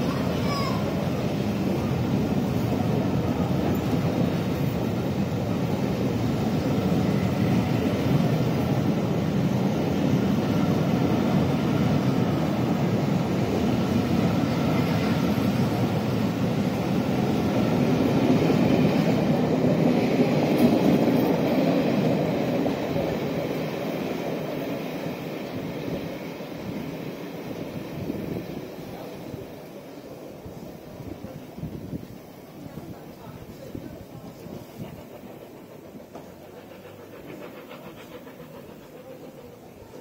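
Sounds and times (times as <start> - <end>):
train wheels rumbling on track: 0.0 - 40.0.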